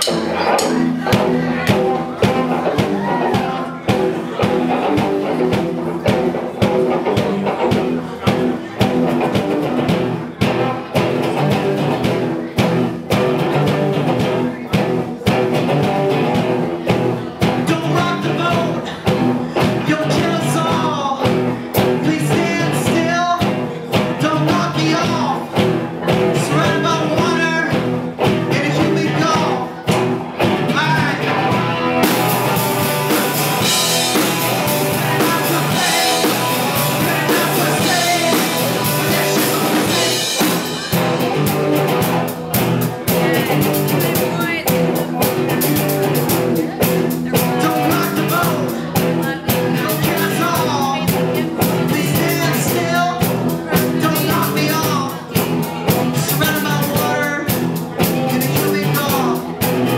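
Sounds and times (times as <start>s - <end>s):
rock band playing: 0.0s - 59.9s
man singing: 17.3s - 30.0s, 30.6s - 59.9s.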